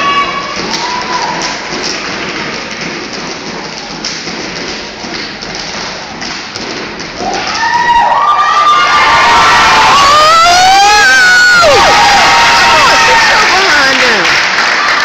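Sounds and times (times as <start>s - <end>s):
stomps and hand claps: 0.5s - 8.2s
audience screaming and cheering: 7.2s - 15.0s.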